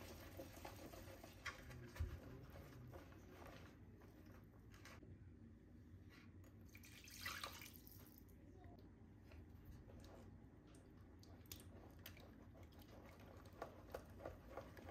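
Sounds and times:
water pouring into batter: 0:06.7 - 0:08.1.

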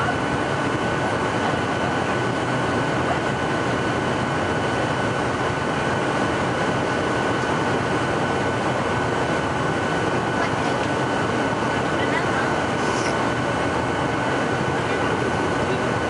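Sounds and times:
jet engines and airflow rushing: 0:00.0 - 0:16.0
thin steady whine: 0:00.0 - 0:16.0.

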